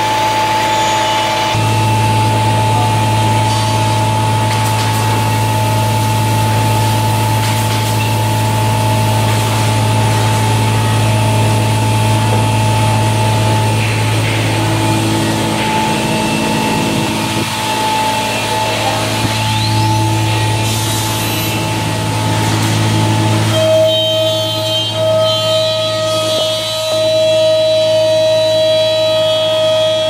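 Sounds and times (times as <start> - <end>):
wood router machine hum: 0.0 - 30.0
spindle whining: 9.7 - 30.0.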